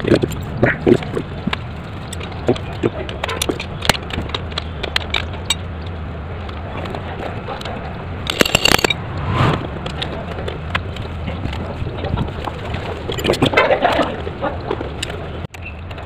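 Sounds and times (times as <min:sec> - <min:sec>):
hand tools clicking on metal: 0:07.6 - 0:09.0
sharp metal clinks: 0:08.3 - 0:09.0.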